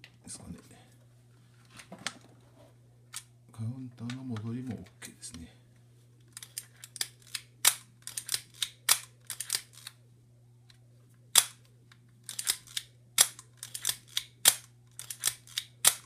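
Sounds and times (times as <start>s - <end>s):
small mechanical clicks: 6.4s - 10.0s, 12.2s - 16.0s.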